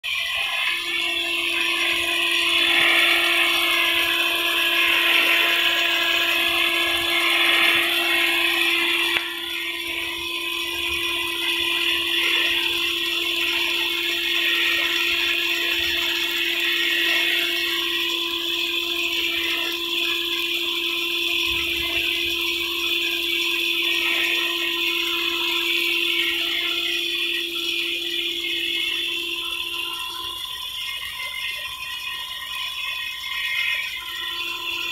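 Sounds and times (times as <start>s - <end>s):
steady hum: 0.0s - 34.9s.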